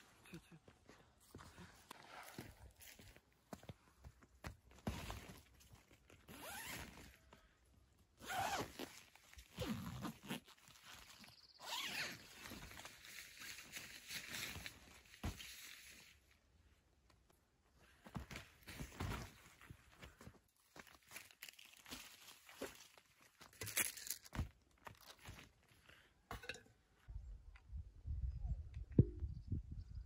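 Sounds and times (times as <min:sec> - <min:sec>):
tent fabric rustling: 0:06.2 - 0:07.2, 0:08.2 - 0:16.2
tent zipper opening and closing: 0:06.3 - 0:07.1, 0:08.2 - 0:12.6.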